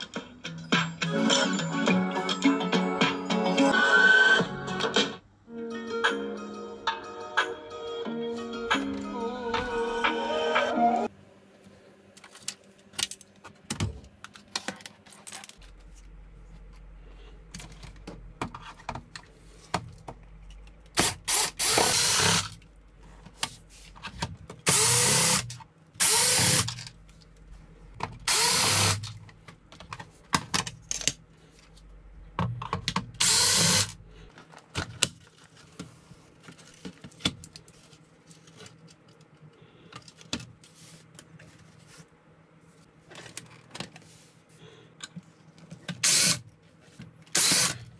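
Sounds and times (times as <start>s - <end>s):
cordless drill motor spinning: 21.3s - 22.6s, 24.7s - 26.8s, 28.3s - 29.1s, 33.2s - 34.0s, 46.0s - 46.4s, 47.3s - 47.9s.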